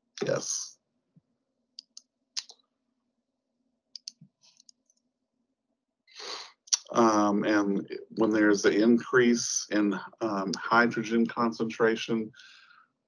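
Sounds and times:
speech: 0.2s - 0.8s, 6.2s - 12.5s
breathy hiss: 6.2s - 6.5s.

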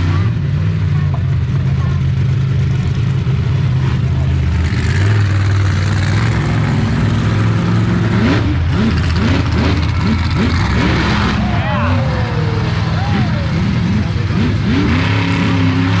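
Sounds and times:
monster truck engines running: 0.0s - 16.0s
engine revs rising in pitch: 4.6s - 16.0s.

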